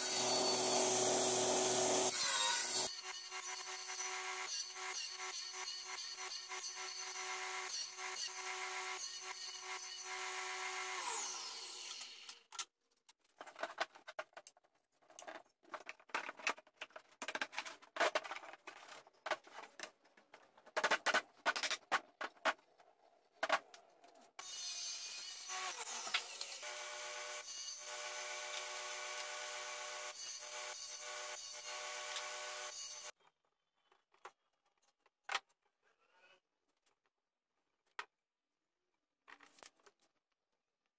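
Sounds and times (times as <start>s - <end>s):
table saw running: 0.0s - 3.0s.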